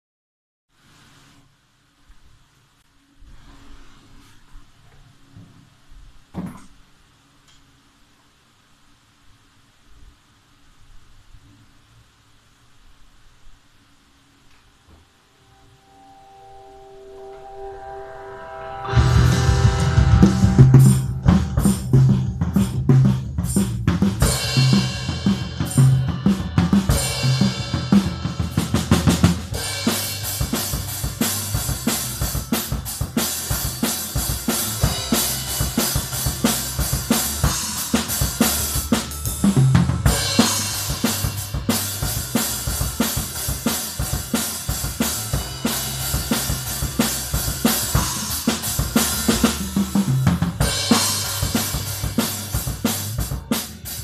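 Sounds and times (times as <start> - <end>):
crash cymbals: 15.3 - 54.0
recorded song with bass: 15.8 - 54.0
acoustic drum kit groove: 18.9 - 54.0.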